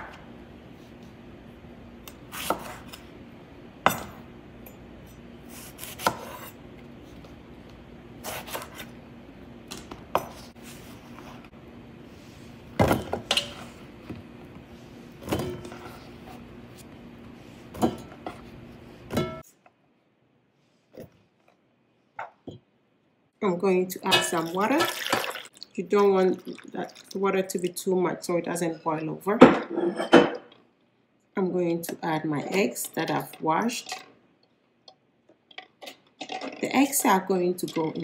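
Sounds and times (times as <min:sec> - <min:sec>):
knife cutting on cutting board: 0:02.3 - 0:03.0, 0:05.5 - 0:06.6.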